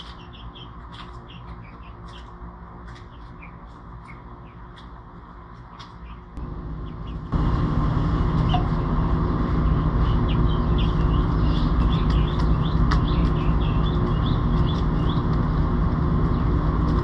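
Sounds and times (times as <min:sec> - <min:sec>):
steady low rumble: 0:00.0 - 0:17.0
high bird chirps: 0:09.7 - 0:15.3.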